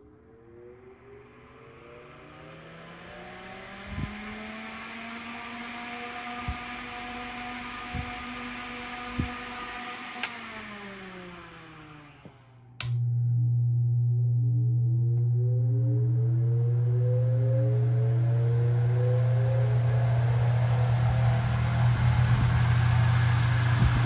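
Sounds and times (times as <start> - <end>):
electric fan motor whine: 0.0 - 24.0
switch click: 10.2 - 10.4, 12.8 - 13.1.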